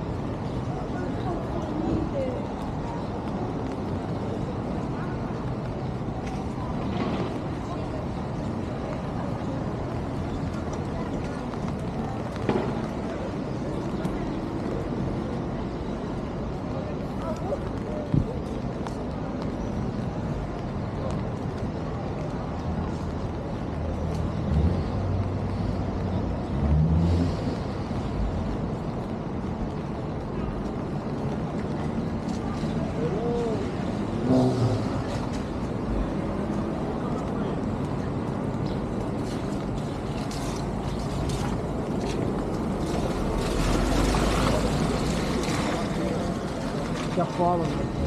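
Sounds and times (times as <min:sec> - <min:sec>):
city traffic noise: 0:00.0 - 0:48.0
street noise: 0:00.0 - 0:48.0
vehicle engine rumbling past: 0:24.1 - 0:28.5, 0:33.1 - 0:36.0.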